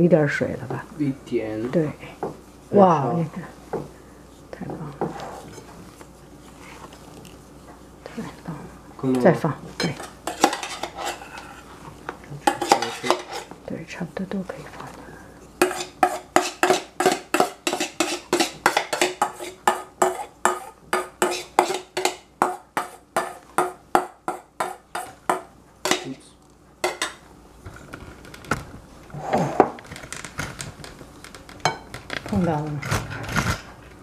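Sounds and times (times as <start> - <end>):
spatula knocking on glass bowl: 15.6 - 26.0.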